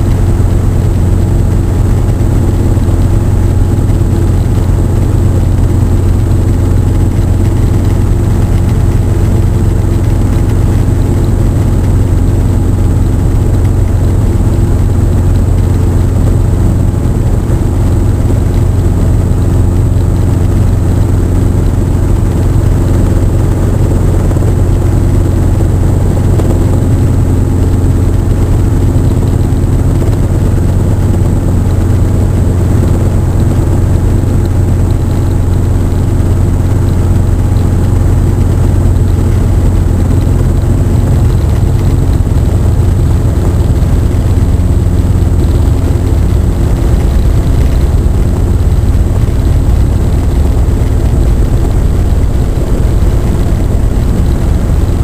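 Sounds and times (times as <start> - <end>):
helicopter drone from cockpit: 0.0 - 55.0.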